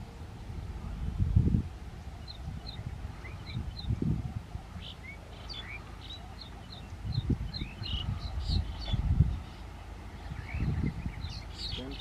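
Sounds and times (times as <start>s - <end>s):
small birds chirping: 1.8s - 12.0s.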